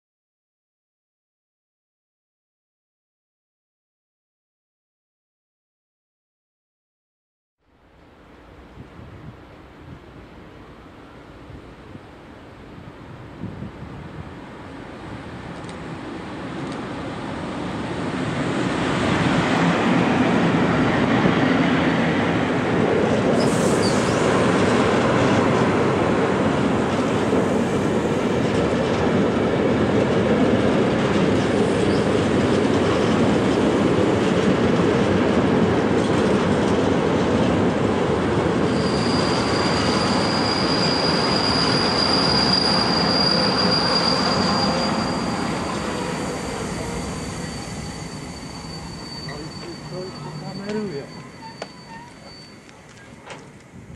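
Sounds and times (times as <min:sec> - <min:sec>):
train wheels rumbling on track: 0:08.2 - 0:53.9
high-pitched wheel squeal: 0:23.4 - 0:24.3, 0:38.7 - 0:53.3.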